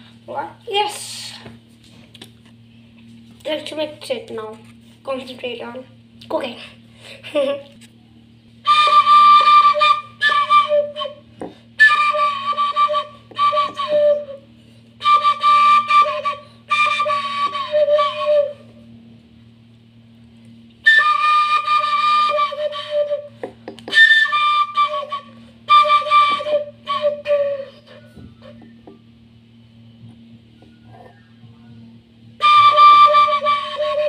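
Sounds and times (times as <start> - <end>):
steady low hum: 0.0 - 34.0
flute-like melody: 8.6 - 18.9, 20.8 - 28.8, 30.5 - 34.0.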